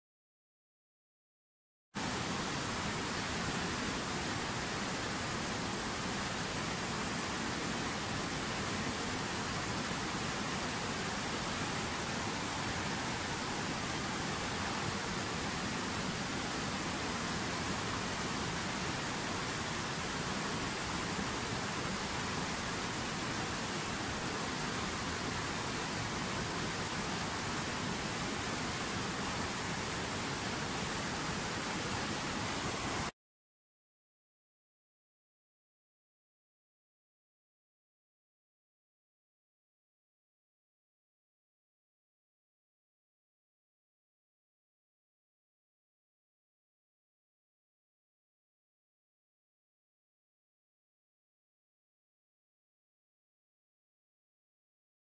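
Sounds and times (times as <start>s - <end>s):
river rushing over rocks: 2.0s - 33.1s.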